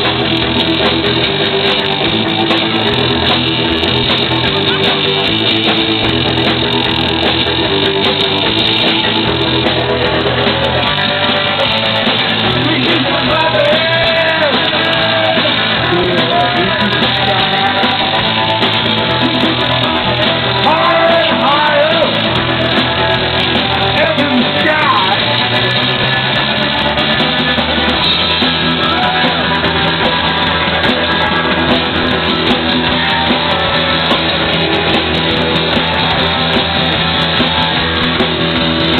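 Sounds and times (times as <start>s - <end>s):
rock band playing live: 0.0s - 38.9s.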